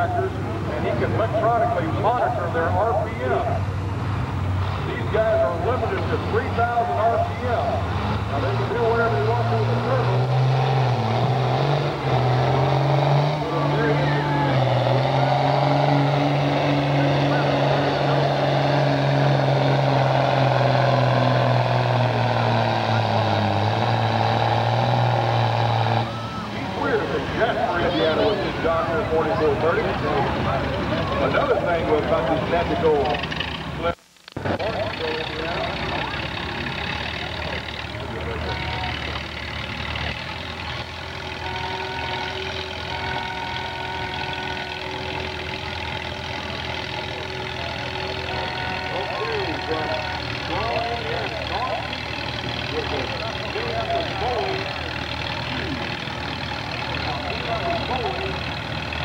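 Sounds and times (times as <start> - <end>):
diesel tractor engine under load: 0.0 - 59.0.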